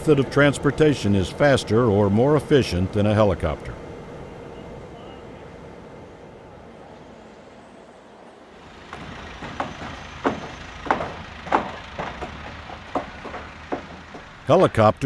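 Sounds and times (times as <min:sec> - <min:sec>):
steady background noise: 0:00.0 - 0:15.0
nails hammered into timber: 0:08.9 - 0:14.4.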